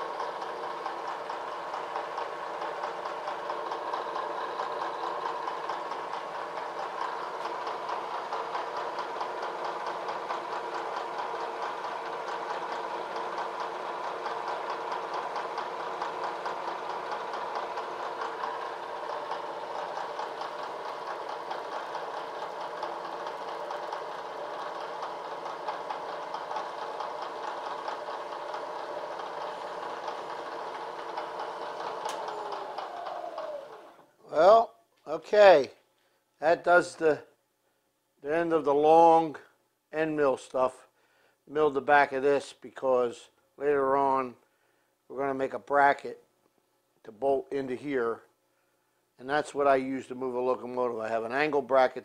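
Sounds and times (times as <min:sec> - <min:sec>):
milling machine spindle whine: 0:00.0 - 0:34.1.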